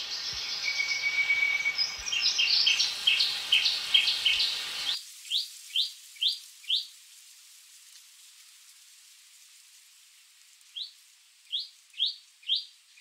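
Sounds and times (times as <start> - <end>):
bird singing rising notes: 0.0 - 5.0
background hiss: 0.0 - 13.0.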